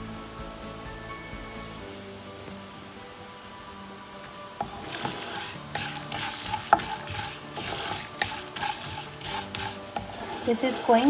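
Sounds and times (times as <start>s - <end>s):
spices sizzling in hot oil: 0.0s - 11.0s
wooden spatula stirring and scraping: 4.6s - 11.0s.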